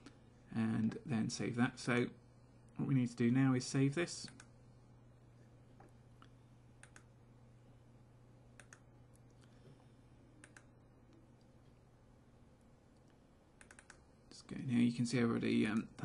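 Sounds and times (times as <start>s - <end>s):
low steady hum: 0.0s - 16.0s
computer mouse clicks: 6.8s - 7.1s, 8.6s - 9.5s, 10.4s - 10.7s, 13.0s - 14.0s.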